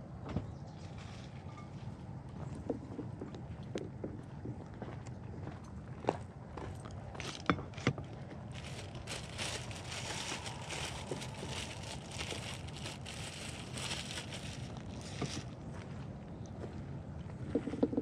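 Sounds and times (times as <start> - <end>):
low background rumble: 2.2 - 18.0
rustling and crinkling of tackle: 7.2 - 15.8.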